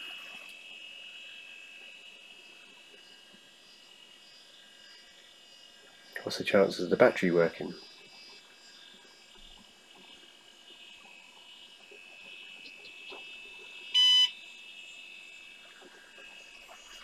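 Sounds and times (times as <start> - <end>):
faint high-pitched computer whine: 0.0 - 17.0
short electronic beep: 14.0 - 14.3.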